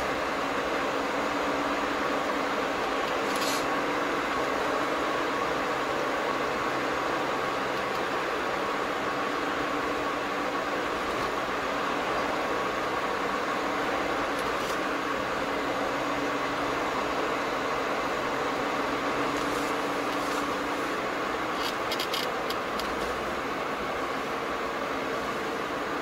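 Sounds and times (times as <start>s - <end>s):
car engine hum: 0.0s - 26.0s
tyre and road noise: 1.7s - 5.2s, 10.4s - 15.8s, 18.0s - 26.0s.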